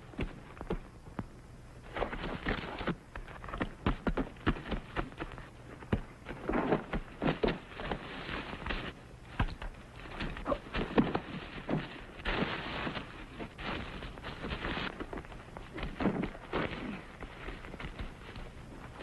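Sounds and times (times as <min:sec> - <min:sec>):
scraping rustling noise: 0:09.9 - 0:19.0.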